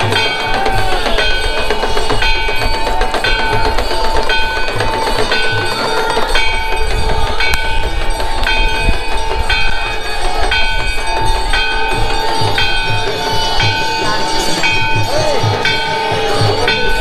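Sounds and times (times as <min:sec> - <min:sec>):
bell struck repeatedly: 0:00.0 - 0:17.0
low drum beats: 0:00.0 - 0:17.0.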